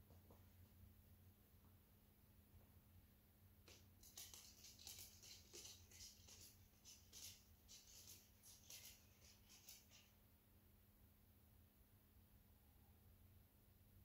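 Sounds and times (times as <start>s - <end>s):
dog claws clicking on wooden floor: 3.7s - 10.0s.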